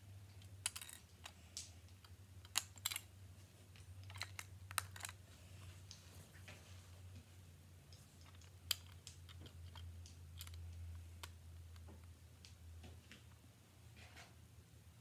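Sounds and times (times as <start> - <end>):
low steady hum: 0.0 - 15.0
plastic bricks clicking: 0.4 - 3.1, 3.8 - 5.2, 7.9 - 12.6.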